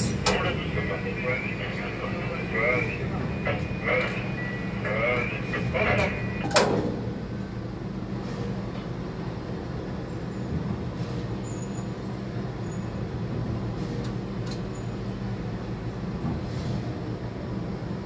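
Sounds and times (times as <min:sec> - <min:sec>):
crane machine hum: 0:00.0 - 0:09.0.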